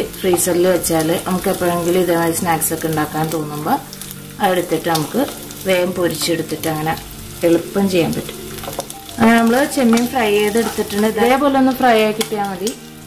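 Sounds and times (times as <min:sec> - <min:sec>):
background music: 0:00.0 - 0:13.0
prawns sizzling in oil: 0:00.0 - 0:13.0
wooden spatula stirring: 0:07.4 - 0:11.5.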